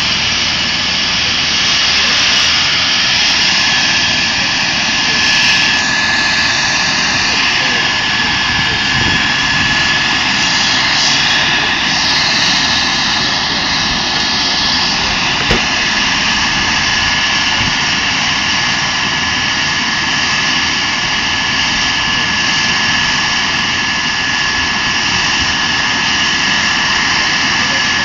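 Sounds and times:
helicopter turbine and rotor noise: 0:00.0 - 0:28.0
brief knock: 0:15.4 - 0:15.7.

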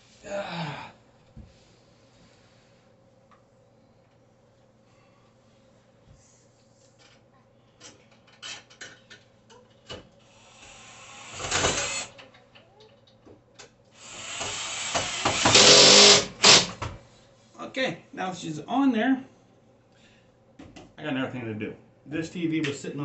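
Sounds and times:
power drill driver whirring: 0:10.3 - 0:12.1, 0:14.0 - 0:16.8.

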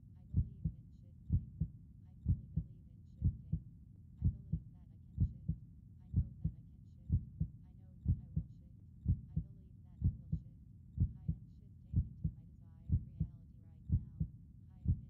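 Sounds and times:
heartbeat thumps: 0:00.4 - 0:03.6, 0:04.2 - 0:04.6, 0:05.2 - 0:05.6, 0:06.2 - 0:10.4, 0:11.0 - 0:13.3, 0:13.9 - 0:15.0.

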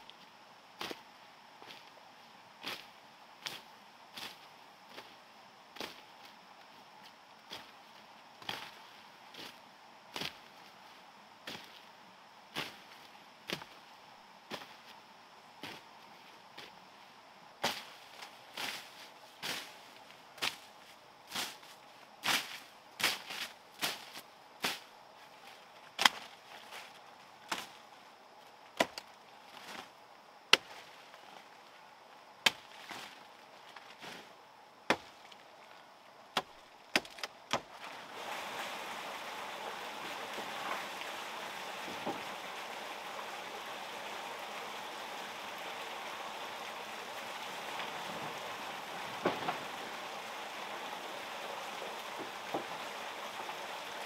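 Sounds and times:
machete chopping brush: 0:28.8 - 0:29.1, 0:30.5 - 0:30.8, 0:32.5 - 0:33.1, 0:34.9 - 0:35.2, 0:36.4 - 0:37.8
running water: 0:37.5 - 0:54.0.

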